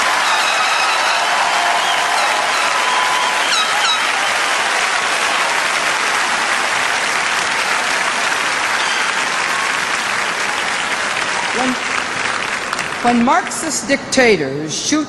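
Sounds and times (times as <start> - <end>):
audience applauding: 0.0 - 13.8.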